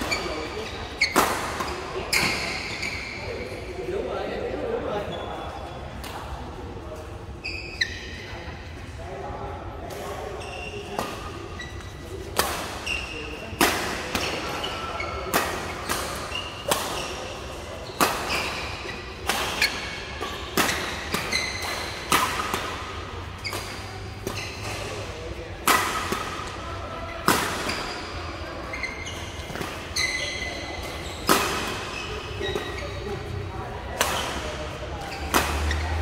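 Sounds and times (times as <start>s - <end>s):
rackets smacking shuttlecock: 0.0s - 3.0s, 10.9s - 26.6s, 27.2s - 36.0s
shoes squeaking on court: 0.0s - 3.7s, 7.4s - 8.4s, 9.9s - 36.0s
players' voices: 0.0s - 36.0s.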